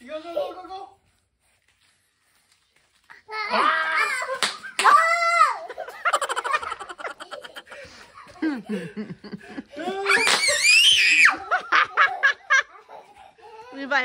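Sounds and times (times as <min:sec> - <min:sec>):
children laughing: 0:03.5 - 0:13.6.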